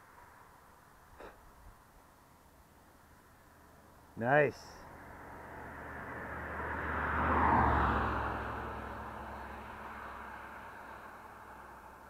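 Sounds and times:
car passing by: 0:04.8 - 0:12.0.

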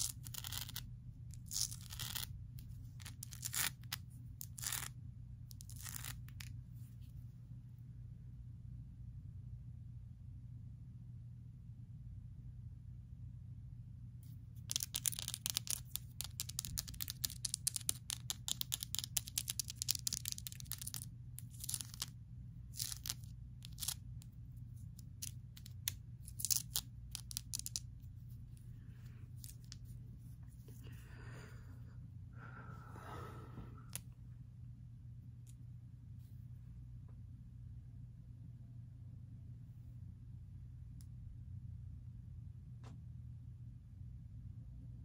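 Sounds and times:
soft rustle: 0:27.7 - 0:31.0.

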